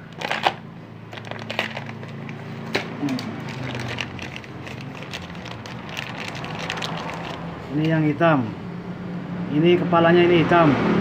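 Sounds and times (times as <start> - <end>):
plastic bag crinkling: 0.0 - 7.5.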